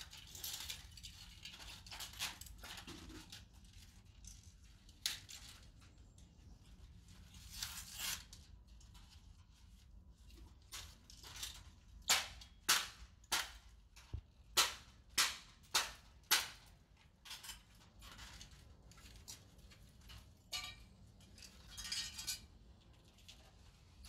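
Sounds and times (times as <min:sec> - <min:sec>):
broken parts crackling and rattling: 0:00.0 - 0:05.8, 0:15.7 - 0:24.0.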